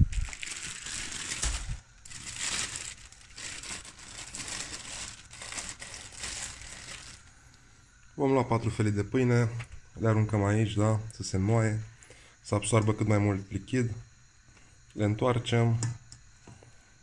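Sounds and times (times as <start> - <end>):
plastic bag crinkling: 0.0 - 7.3.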